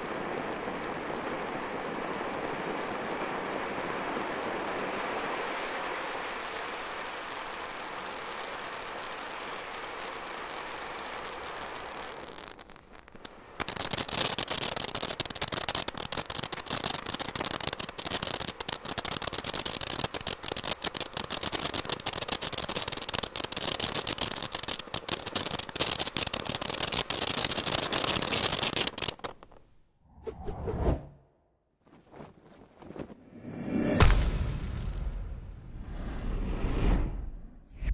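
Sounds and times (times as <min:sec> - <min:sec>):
firework fountain spraying hiss: 0:00.0 - 0:29.7
dense rapid firework crackling: 0:00.0 - 0:29.8, 0:33.7 - 0:36.0.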